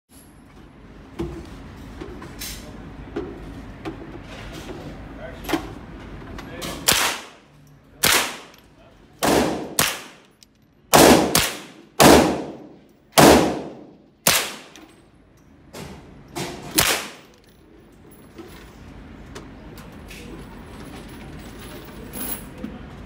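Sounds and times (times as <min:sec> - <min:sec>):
rifle gunshots echoing indoors: 0:06.8 - 0:08.6, 0:09.2 - 0:10.3, 0:10.9 - 0:15.0, 0:16.5 - 0:17.4.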